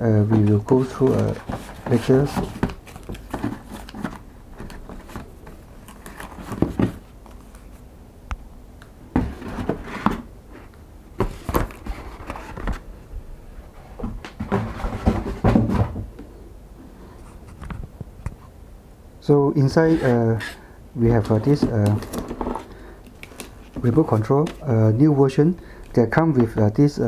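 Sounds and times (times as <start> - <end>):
cardboard and paper rustling: 0.2 - 7.8, 11.2 - 12.8, 19.8 - 24.7.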